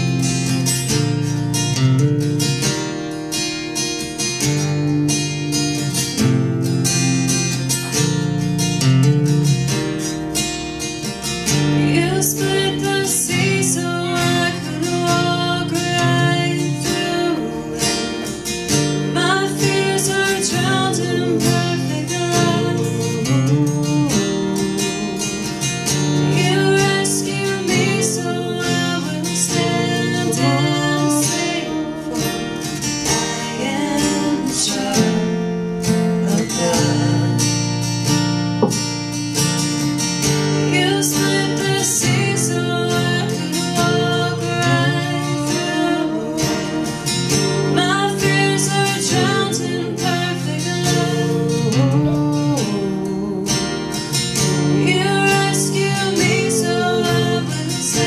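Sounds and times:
acoustic guitar strummed: 0:00.0 - 0:58.0
woman singing: 0:11.4 - 0:37.5, 0:40.5 - 0:58.0.

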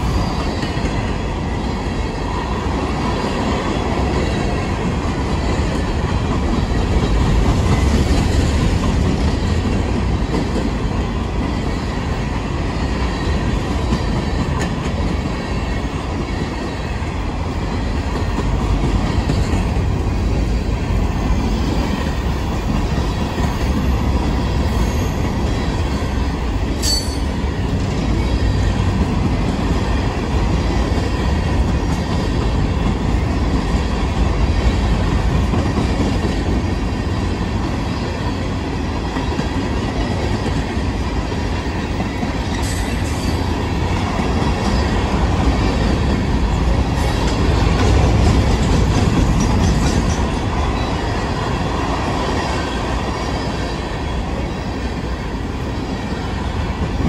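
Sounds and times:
train wheels rumbling on rails: 0:00.0 - 0:57.0
sharp high squeak: 0:26.8 - 0:27.3.

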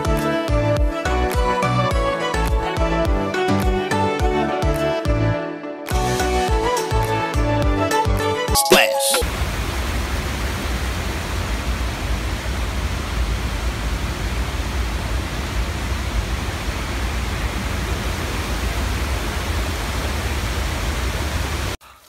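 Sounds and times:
water rushing over a dam: 0:08.8 - 0:21.8.

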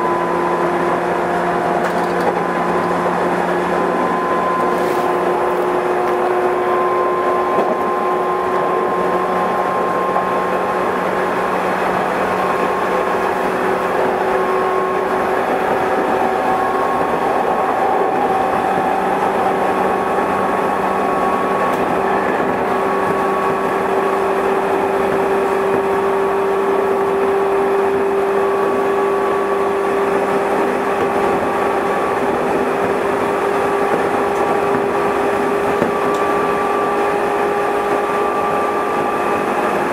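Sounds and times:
traction motor whine: 0:00.0 - 0:39.9
train wheels rumbling on rail: 0:00.0 - 0:39.9.

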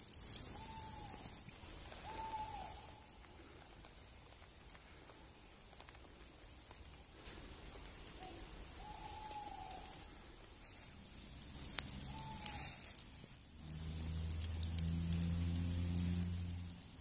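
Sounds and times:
campfire embers crackling: 0:00.0 - 0:17.0
wavering call: 0:00.4 - 0:01.4, 0:02.0 - 0:03.1, 0:11.8 - 0:13.0.

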